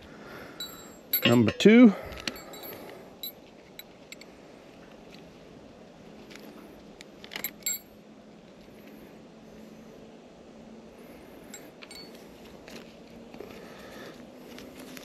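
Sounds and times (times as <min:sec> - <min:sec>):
metal hooks clinking: 0:00.6 - 0:04.2, 0:07.3 - 0:07.9.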